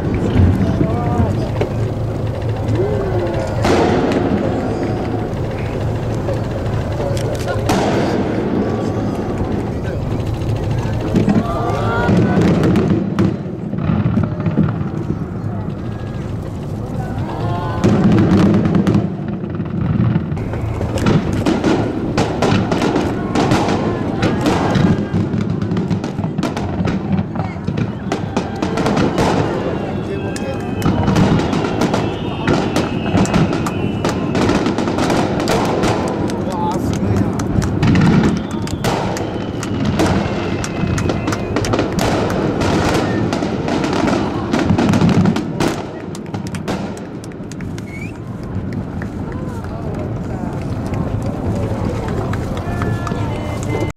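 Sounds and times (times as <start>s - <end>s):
fireworks booms and crackles: 0.0s - 53.9s.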